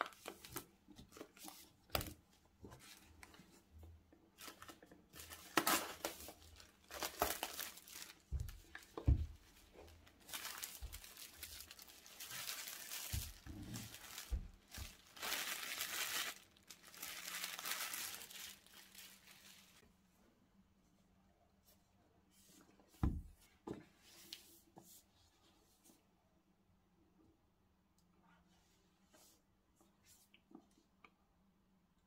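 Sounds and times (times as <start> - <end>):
plastic film wrap crinkling: 0.0 - 2.1, 4.4 - 19.8.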